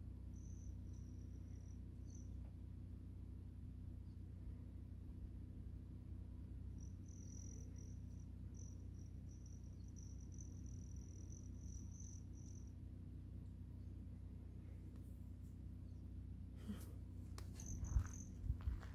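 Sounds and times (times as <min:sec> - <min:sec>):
steady low hum: 0:00.0 - 0:18.9
insect trilling: 0:07.0 - 0:12.7.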